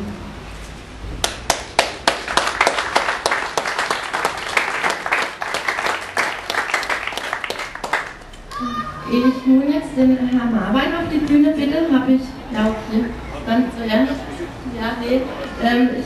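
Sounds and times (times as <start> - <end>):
crowd applauding: 1.2 - 8.3.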